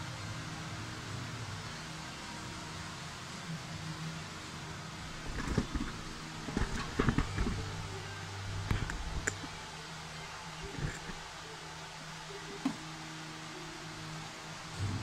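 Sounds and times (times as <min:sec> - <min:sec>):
steady low hum: 0:00.0 - 0:15.0
handling knocks and rubs: 0:05.1 - 0:09.6, 0:10.6 - 0:11.2.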